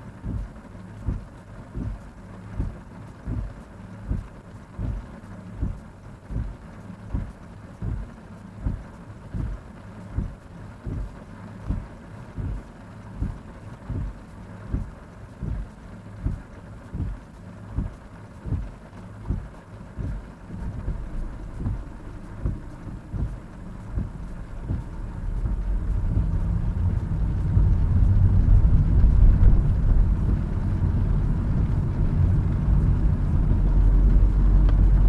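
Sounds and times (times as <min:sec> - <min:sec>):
car engine idling: 0:00.0 - 0:35.0
windscreen wipers thumping: 0:00.1 - 0:35.0
heavy rain: 0:07.8 - 0:35.0.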